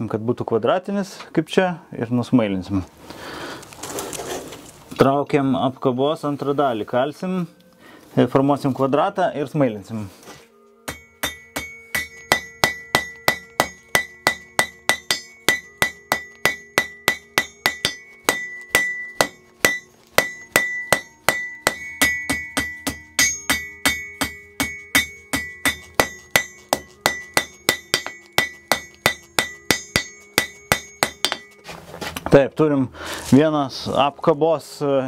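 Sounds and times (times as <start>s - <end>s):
hammer striking bar on anvil: 10.8s - 31.7s.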